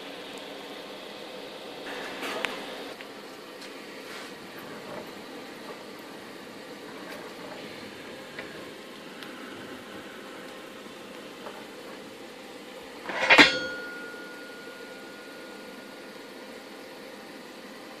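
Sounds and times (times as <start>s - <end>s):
faint steady hum: 0.0s - 18.0s
metallic ringing tone: 13.0s - 16.8s.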